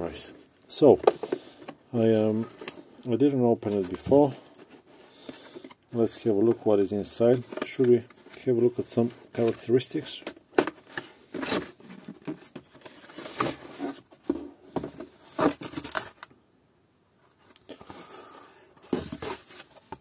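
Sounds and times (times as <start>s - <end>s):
cardboard box handling: 18.8s - 20.0s.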